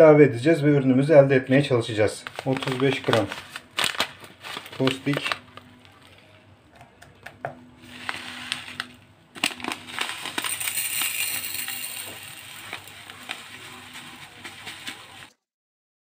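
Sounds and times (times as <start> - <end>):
plastic bag rustling: 2.0 - 6.4, 7.8 - 15.4
granules pouring into metal jug: 2.3 - 5.4, 7.8 - 15.4.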